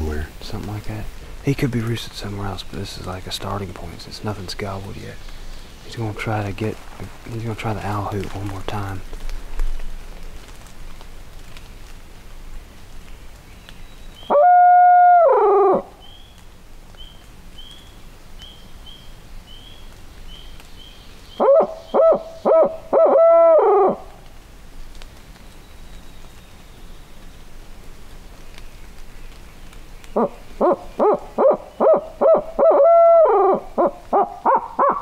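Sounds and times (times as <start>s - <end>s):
owl hoot call: 14.2s - 16.2s, 21.3s - 24.2s, 30.2s - 35.0s.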